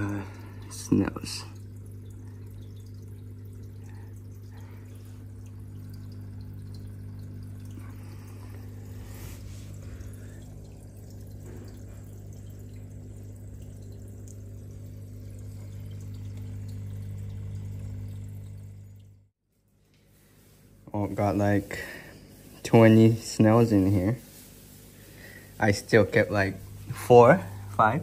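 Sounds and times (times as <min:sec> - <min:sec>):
aquarium pump humming: 0:00.0 - 0:28.0
water trickling and dripping: 0:00.0 - 0:28.0.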